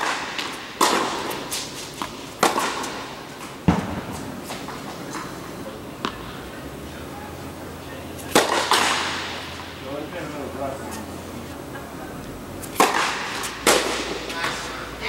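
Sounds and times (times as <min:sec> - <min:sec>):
ball thud: 0:00.0 - 0:05.3, 0:06.0 - 0:06.4, 0:08.3 - 0:09.8, 0:12.8 - 0:14.3
tennis balls popping off rackets: 0:00.0 - 0:06.5, 0:08.2 - 0:09.7, 0:12.6 - 0:14.6.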